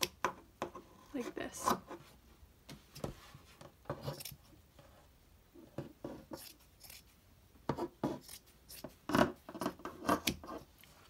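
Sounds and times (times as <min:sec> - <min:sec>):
scissors snipping fabric: 0:06.3 - 0:07.1, 0:08.2 - 0:10.6.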